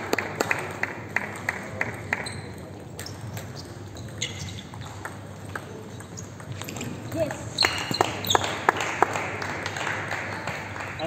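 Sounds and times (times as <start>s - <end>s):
table tennis ball bouncing: 3.0s - 8.6s.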